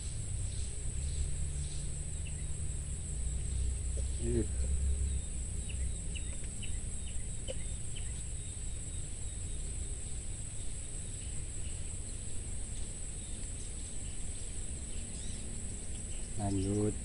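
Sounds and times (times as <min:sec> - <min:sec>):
insects buzzing: 0:00.0 - 0:17.0
low rumble: 0:00.0 - 0:17.0.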